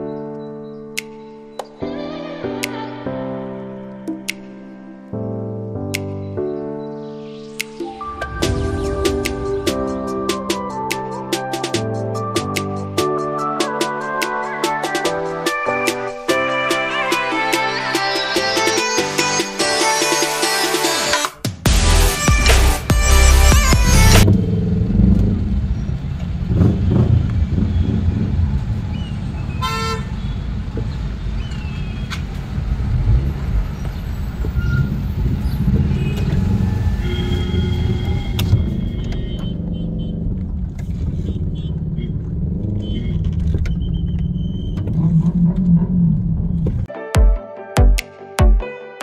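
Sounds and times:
car engine and road rumble: 21.9 - 46.9
car horn toot: 29.5 - 30.4, 35.7 - 44.8.

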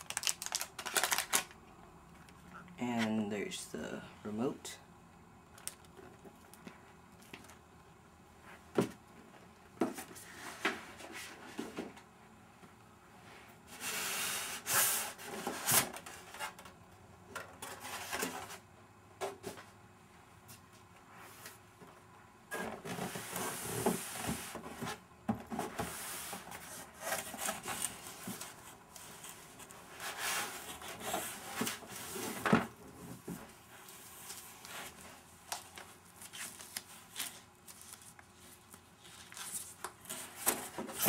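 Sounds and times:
packaging rustling: 0.0 - 1.6.

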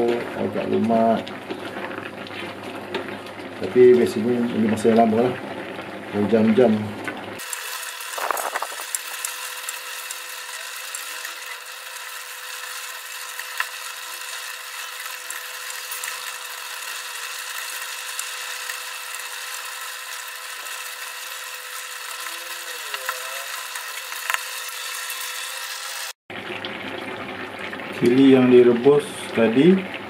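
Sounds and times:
sauce bubbling in a pot: 0.8 - 25.6, 26.3 - 30.0
small pops and ticks: 24.2 - 24.5.

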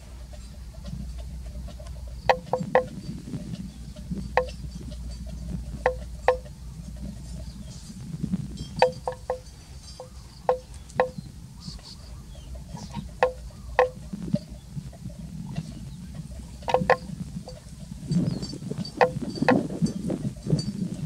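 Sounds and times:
bell clonking: 8.6 - 11.2.

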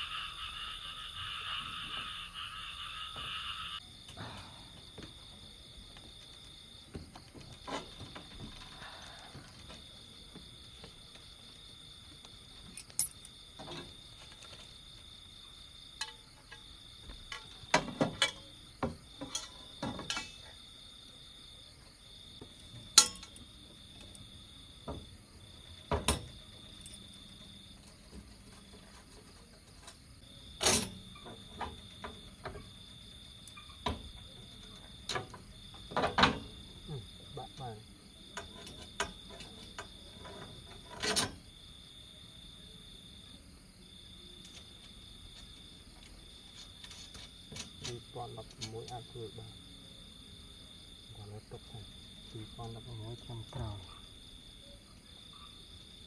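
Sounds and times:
crickets trilling: 0.0 - 56.0
faint insect hiss: 0.0 - 56.0
knocks and clanks of handling: 16.0 - 20.5, 33.8 - 36.6, 38.4 - 41.4.

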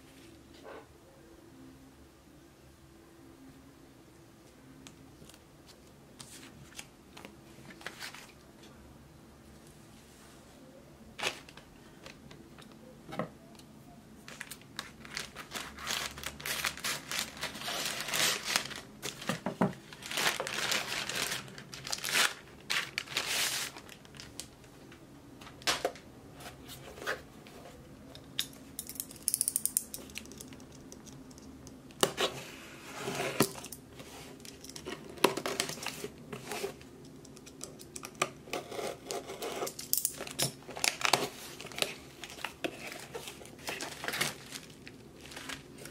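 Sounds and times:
plastic bag crinkling and tearing: 14.3 - 24.6, 40.2 - 45.9.

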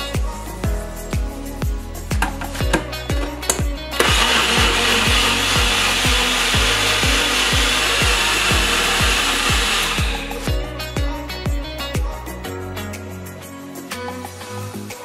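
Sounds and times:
blender whirring: 4.0 - 10.5.

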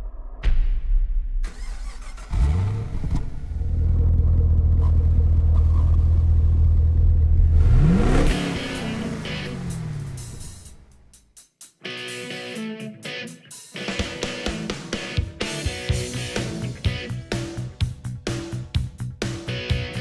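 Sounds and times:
car engine starting and idling: 1.4 - 11.1
engine revving: 1.5 - 10.9.

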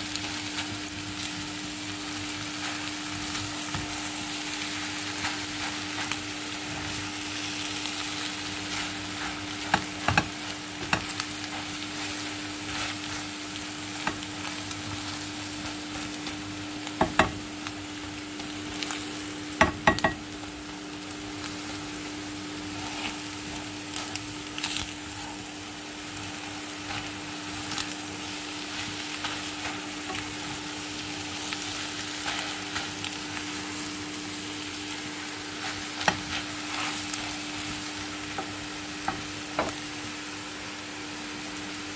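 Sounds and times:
food sizzling in frying pan: 0.0 - 41.9
spatula tapping and scraping pan: 8.7 - 12.1, 17.0 - 17.5, 19.6 - 20.2.

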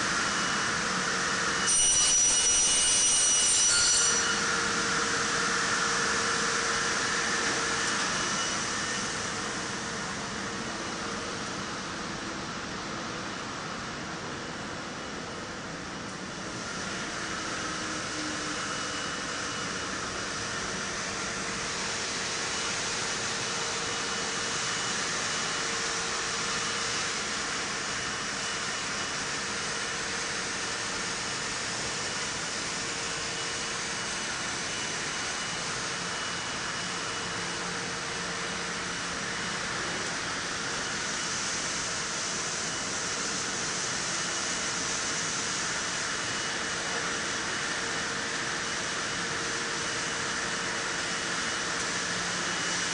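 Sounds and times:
faint high whine: 0.0 - 52.9
industrial machinery hiss: 16.5 - 52.9.

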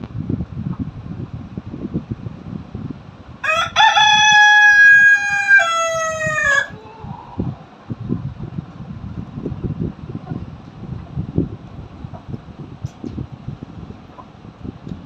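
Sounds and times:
rooster crowing: 3.4 - 7.1.

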